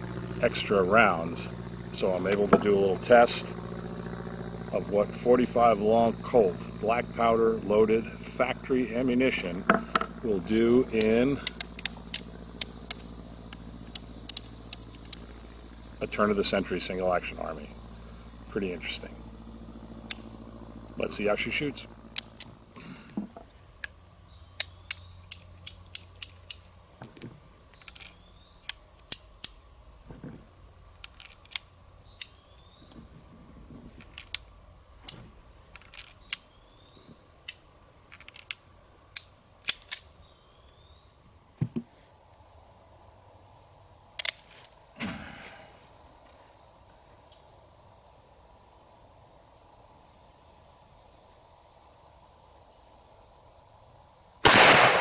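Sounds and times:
high insect drone: 0.0s - 55.0s
revolver metallic clicks: 7.8s - 15.4s, 20.0s - 20.4s, 21.0s - 22.6s, 23.8s - 29.6s, 31.0s - 33.0s, 34.0s - 40.8s, 44.1s - 44.5s, 54.4s - 55.0s
dull knocks: 41.6s - 41.9s.

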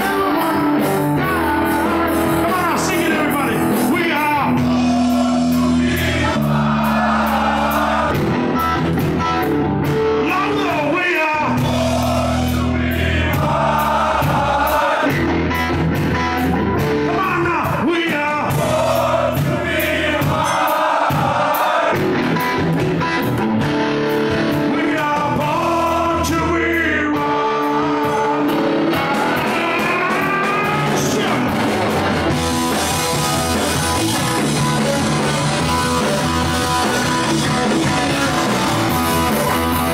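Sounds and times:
man singing: 0.0s - 6.4s, 10.2s - 12.8s, 17.0s - 20.6s, 24.6s - 31.9s
rock band playing: 0.0s - 39.9s.

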